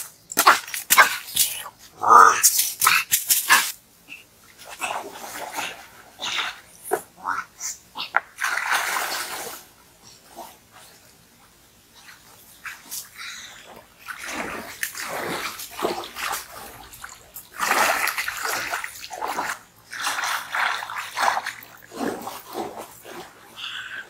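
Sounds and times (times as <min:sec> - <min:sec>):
river water splashing: 0:08.3 - 0:09.8, 0:14.0 - 0:23.6.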